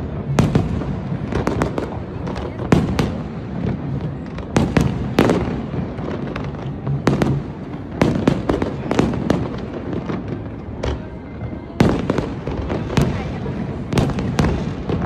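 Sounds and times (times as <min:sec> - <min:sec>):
fireworks bangs and cracks: 0:00.0 - 0:15.0.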